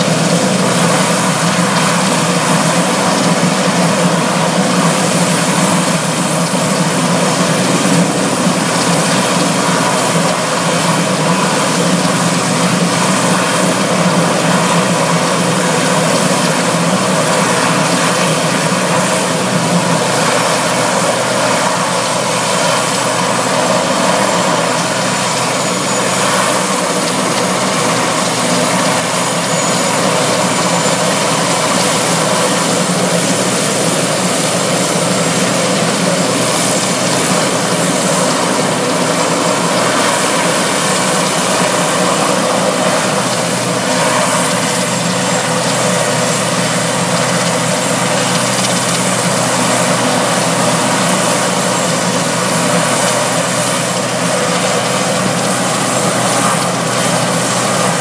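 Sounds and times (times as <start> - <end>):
helicopter engines and rotors running: 0.0 - 58.0.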